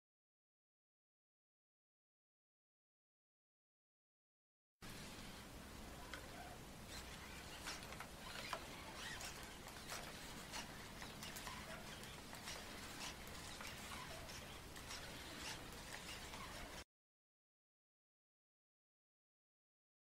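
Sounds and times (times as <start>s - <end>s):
brief whirs: 6.0s - 16.8s
robot dog servo clicks: 6.9s - 16.8s.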